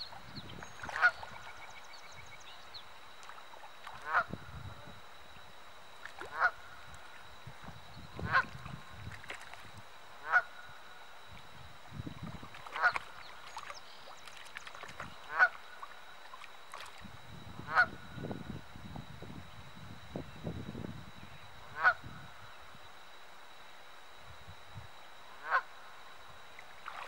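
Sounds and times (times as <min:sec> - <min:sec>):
goose honking: 0:04.0 - 0:04.3, 0:06.3 - 0:06.6, 0:10.2 - 0:10.6, 0:12.8 - 0:13.0, 0:25.4 - 0:25.7.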